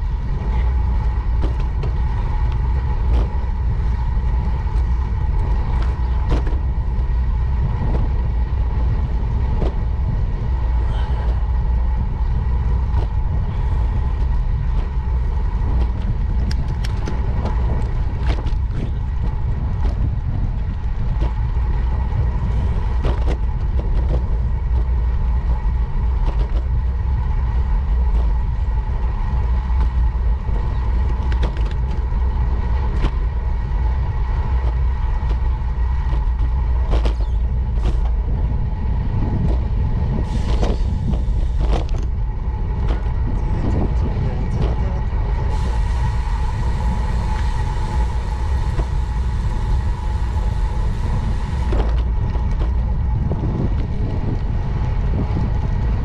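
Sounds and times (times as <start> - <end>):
tyre and road rumble: 0.0 - 56.0
wind buffeting microphone: 0.0 - 56.0
bicycle clicks and rattles: 11.5 - 43.3, 51.7 - 56.0
hiss: 45.4 - 51.7.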